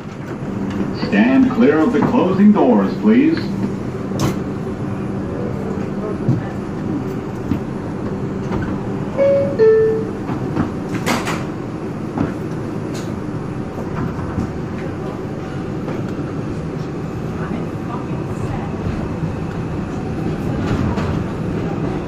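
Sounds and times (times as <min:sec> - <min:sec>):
subway car rumble: 0:00.0 - 0:22.0
two-note door chime: 0:09.2 - 0:10.2.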